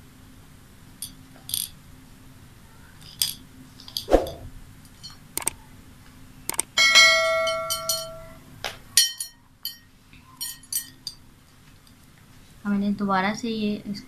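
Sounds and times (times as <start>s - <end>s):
sharp clicks: 5.4s - 5.6s, 6.5s - 6.8s.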